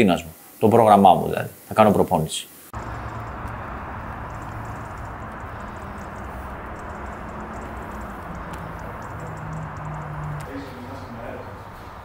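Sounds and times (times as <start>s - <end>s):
low steady hum: 2.8s - 12.0s
steady rushing noise: 2.8s - 12.0s.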